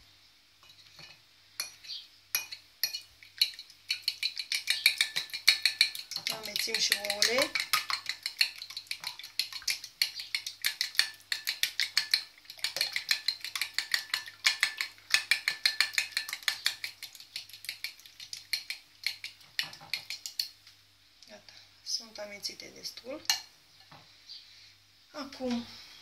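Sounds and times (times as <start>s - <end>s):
fork clinking against plate: 0.6s - 8.6s.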